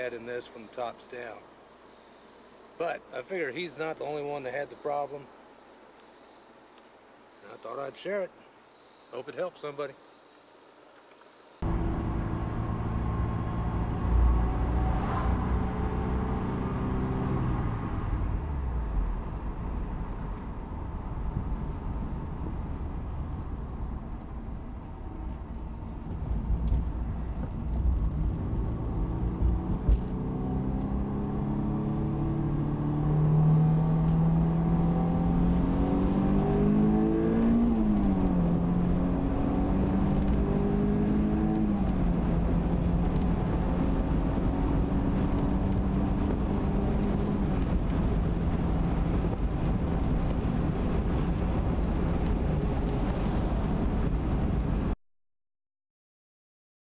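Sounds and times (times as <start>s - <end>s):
car engine accelerating: 11.6s - 55.0s
tyre and road noise: 11.6s - 55.0s.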